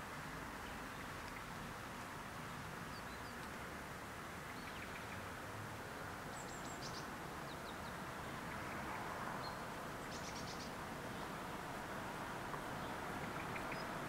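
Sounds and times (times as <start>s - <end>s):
outdoor background noise: 0.0s - 14.0s
faint high bird chirps: 9.4s - 10.7s.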